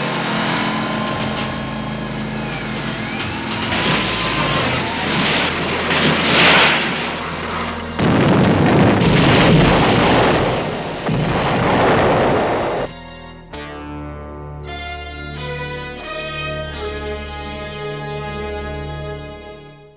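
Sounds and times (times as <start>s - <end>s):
car crashing and sliding through dirt: 0.0s - 12.9s
guitar music: 0.0s - 19.5s
loud explosion and fire blast: 3.0s - 12.9s.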